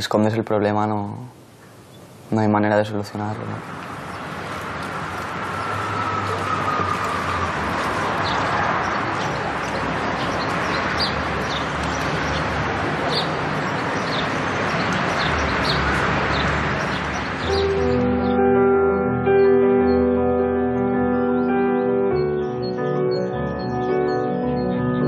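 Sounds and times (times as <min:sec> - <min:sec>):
small birds chirping: 0:00.7 - 0:18.4, 0:21.1 - 0:25.0
background hubbub: 0:01.2 - 0:18.8.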